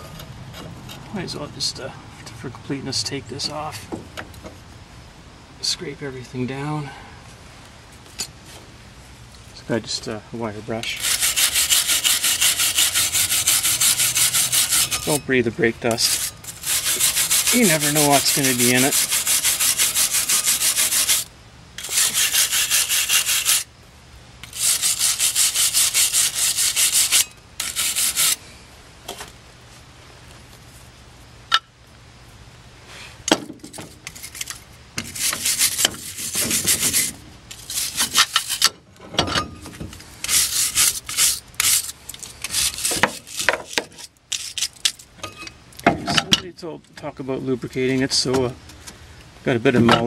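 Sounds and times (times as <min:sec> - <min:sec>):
wire brush scrubbing metal: 0:10.8 - 0:23.7, 0:24.4 - 0:28.4, 0:33.7 - 0:38.7, 0:40.2 - 0:45.0.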